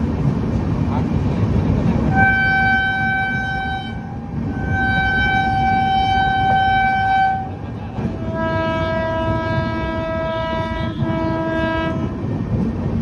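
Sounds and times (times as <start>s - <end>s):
train rumbling: 0.0s - 13.0s
train horn blasts: 2.1s - 12.3s.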